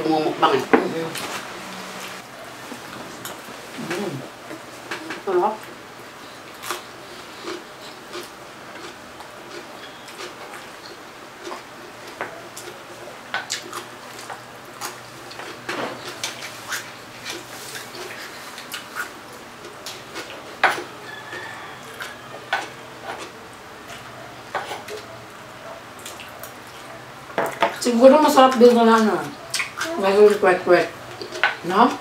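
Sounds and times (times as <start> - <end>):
chewing and mouth smacks: 13.4 - 25.4, 26.0 - 27.8, 29.0 - 30.4.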